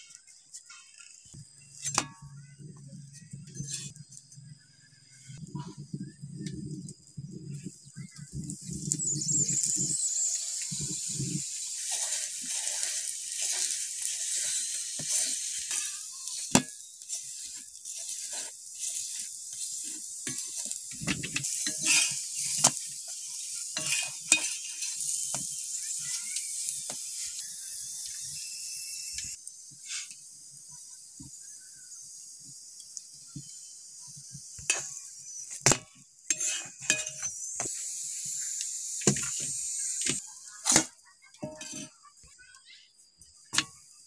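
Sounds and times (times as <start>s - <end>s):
oil sizzling on a hot pan: 0.0s - 44.0s
metal spatula scraping pan: 3.3s - 4.0s, 9.7s - 27.4s, 36.3s - 37.7s, 40.0s - 42.2s.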